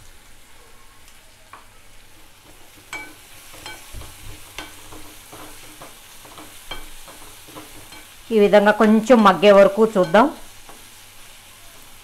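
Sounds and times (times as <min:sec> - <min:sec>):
onions sizzling in oil: 0:00.0 - 0:12.0
wooden spatula scraping a pan: 0:02.1 - 0:08.2.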